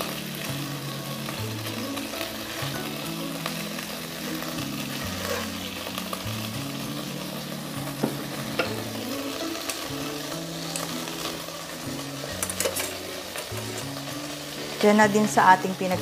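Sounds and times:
oil sizzling in a wok: 0:00.0 - 0:16.0
utensil clicking against pan: 0:12.3 - 0:13.9.

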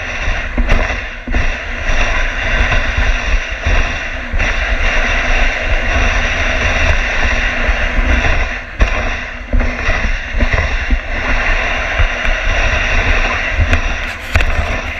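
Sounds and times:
sled runners hissing on snow: 0:00.0 - 0:14.9
wind buffeting microphone: 0:00.0 - 0:14.9.

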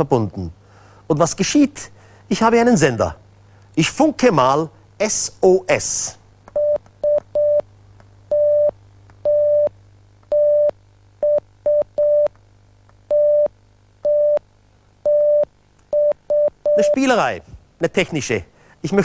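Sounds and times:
morse code beeping tone: 0:15.1 - 0:17.0.

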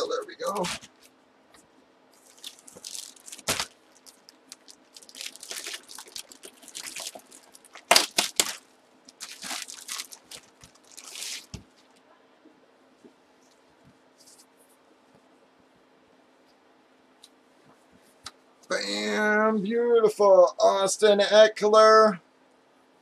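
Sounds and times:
plastic packaging crinkling: 0:02.2 - 0:11.9.

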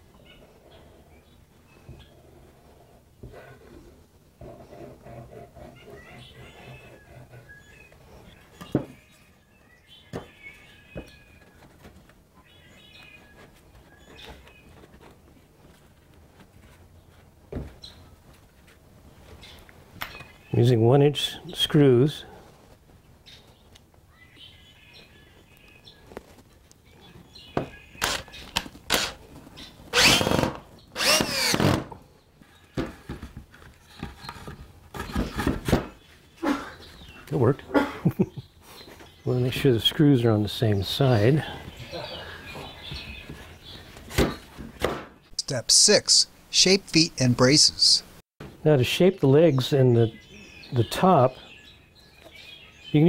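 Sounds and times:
cordless drill driving screws: 0:28.0 - 0:28.3, 0:28.9 - 0:29.2, 0:29.9 - 0:31.9.

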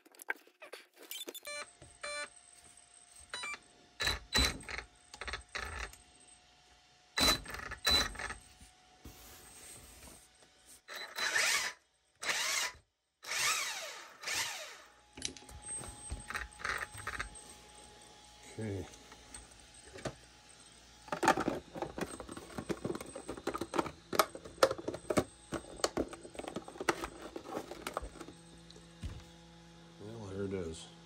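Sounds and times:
wheels whirring: 0:15.5 - 0:29.4.

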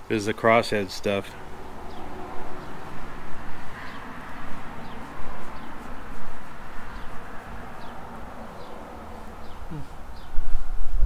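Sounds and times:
small bird chirping: 0:01.8 - 0:10.5.

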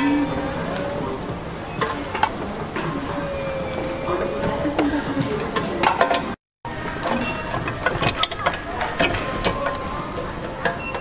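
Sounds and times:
vending machine clicking and rattling: 0:06.9 - 0:11.0.

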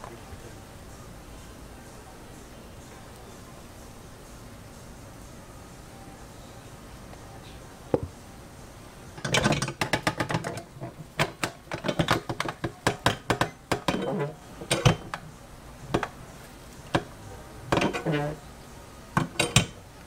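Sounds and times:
metal clanking and rattling: 0:09.2 - 0:15.2, 0:17.7 - 0:18.4.

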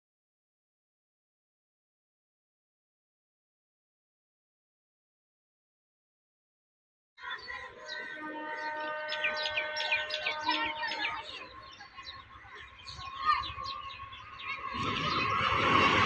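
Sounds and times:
birds chirping: 0:07.2 - 0:16.0
electric train approaching: 0:07.2 - 0:16.0.

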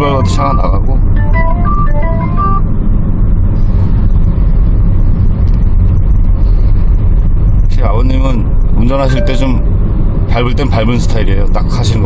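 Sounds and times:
road and engine rumble in car: 0:00.0 - 0:12.0
short electronic melody: 0:00.4 - 0:02.6, 0:09.1 - 0:09.8.

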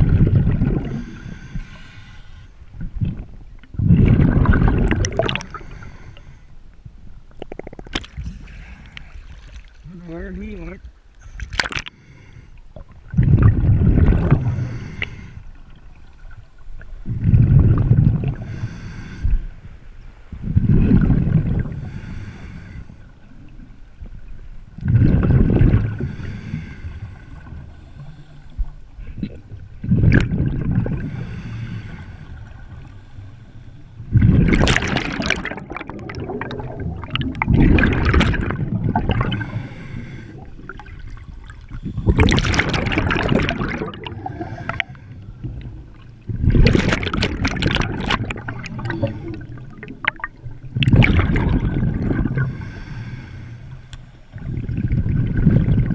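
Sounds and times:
exhaled bubbles rushing: 0:00.0 - 0:01.3, 0:02.8 - 0:05.7, 0:07.3 - 0:09.8, 0:13.0 - 0:14.7, 0:17.0 - 0:18.5, 0:20.5 - 0:21.8, 0:24.8 - 0:26.1, 0:29.1 - 0:31.2, 0:34.1 - 0:44.9, 0:46.2 - 0:52.6, 0:54.3 - 0:55.9
scuba regulator breathing underwater: 0:00.6 - 0:02.6, 0:05.1 - 0:06.5, 0:11.2 - 0:12.6, 0:14.0 - 0:15.6, 0:18.2 - 0:19.6, 0:20.9 - 0:23.2, 0:24.9 - 0:28.7, 0:30.4 - 0:36.6, 0:37.4 - 0:45.6, 0:51.1 - 0:54.4.

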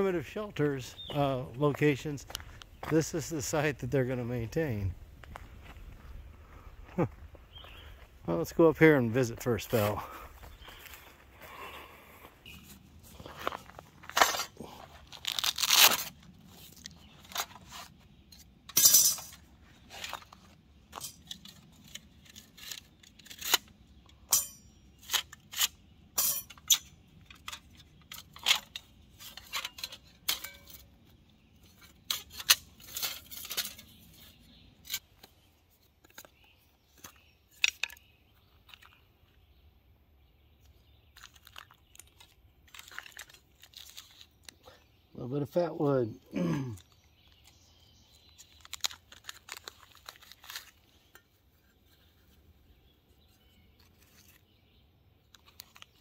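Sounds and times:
pouch rustling and tearing: 0:14.0 - 0:17.8, 0:48.4 - 0:50.8.

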